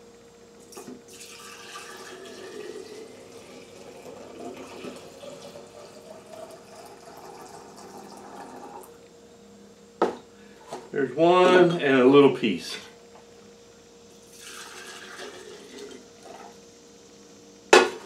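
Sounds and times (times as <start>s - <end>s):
liquid pouring into a glass jar: 1.1s - 8.9s, 14.3s - 16.0s.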